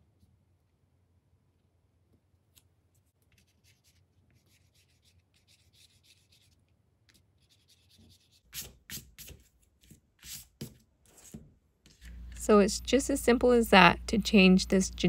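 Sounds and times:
eraser rubbing on paper: 3.4s - 6.6s, 7.4s - 11.4s.

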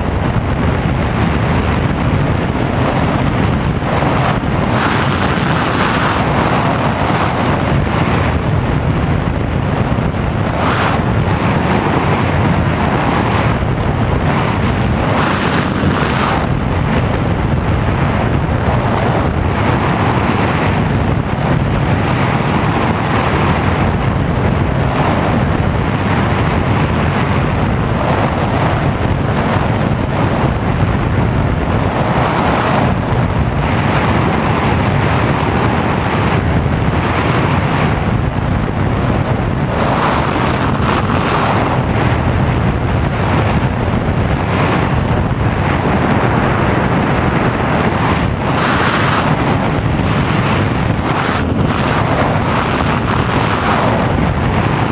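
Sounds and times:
airflow rushing over microphone: 0.0s - 54.9s.

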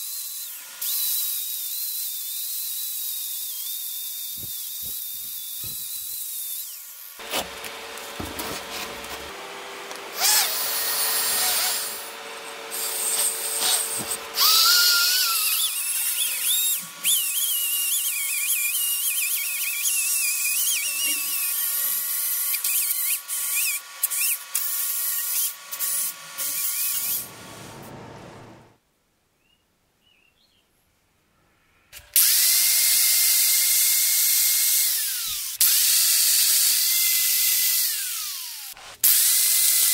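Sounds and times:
angle grinder with wire wheel: 0.0s - 27.5s
angle grinder grinding metal: 0.0s - 27.9s
rotary tool wire brush whining: 0.0s - 28.6s.

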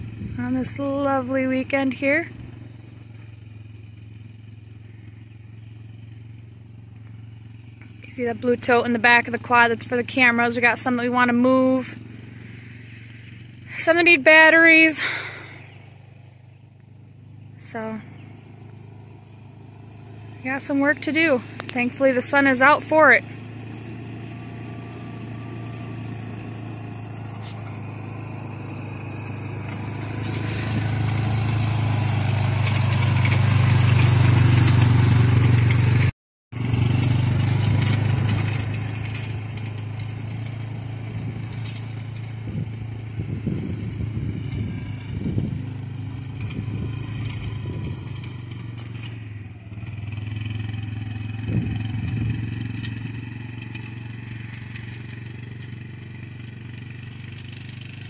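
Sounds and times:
atv engine running: 0.0s - 58.0s
rattles: 36.8s - 55.8s.

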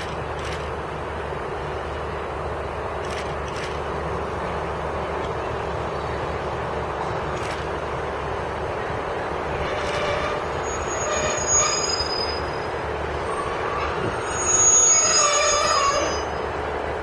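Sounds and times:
low train rumble: 0.0s - 17.0s
train wheels squealing: 9.6s - 16.6s.

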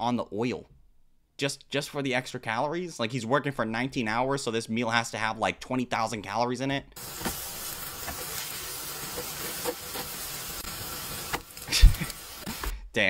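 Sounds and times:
food sizzling in oil: 7.0s - 12.7s.

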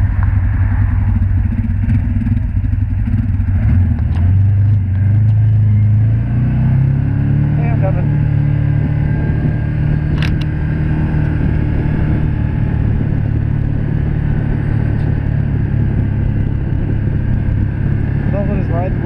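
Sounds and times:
vehicle engine cruising: 0.0s - 19.0s.

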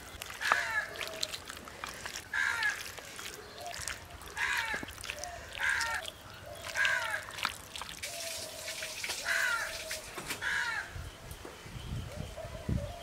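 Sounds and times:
crows cawing: 0.4s - 7.5s, 9.2s - 9.8s, 10.4s - 11.0s.

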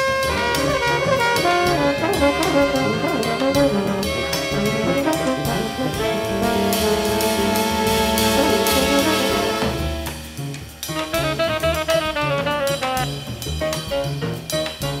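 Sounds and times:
jazz ensemble playing: 0.0s - 15.0s
horns holding a long chord: 0.3s - 10.1s.

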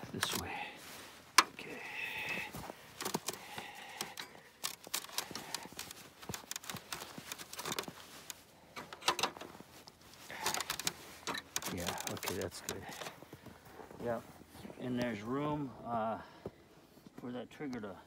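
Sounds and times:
pliers twisting steel wire: 3.0s - 9.4s, 10.4s - 13.2s
metallic clicks and scrapes: 3.0s - 9.5s, 10.2s - 13.2s.

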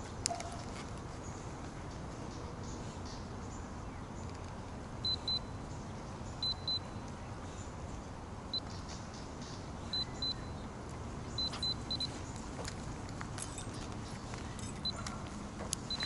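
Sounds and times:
steady background noise: 0.0s - 16.0s
short high-pitched beeps: 5.0s - 5.6s, 6.4s - 6.9s, 9.9s - 10.6s, 11.4s - 12.2s.

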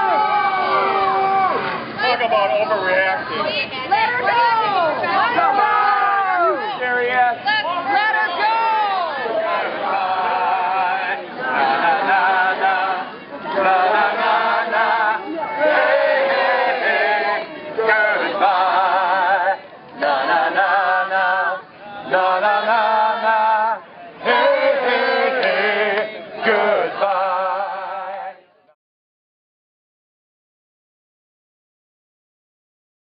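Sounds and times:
voices singing: 3.9s - 28.5s.

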